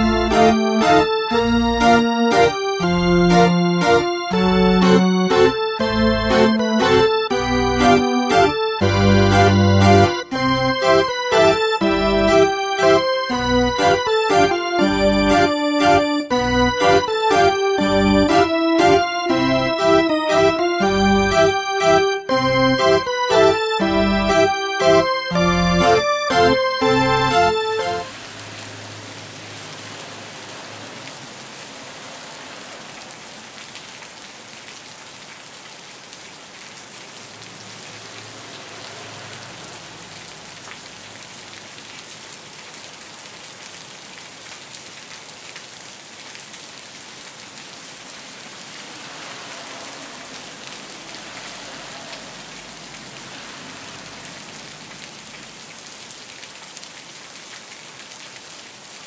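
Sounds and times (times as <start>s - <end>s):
rain falling on soil: 27.6s - 59.0s.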